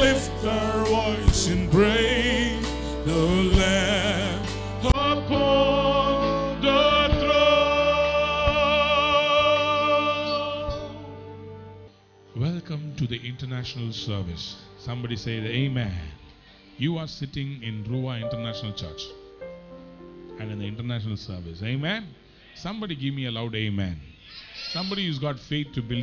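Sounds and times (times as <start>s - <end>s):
man singing into microphone: 0.0s - 11.0s
instrumental backing music: 0.0s - 22.5s.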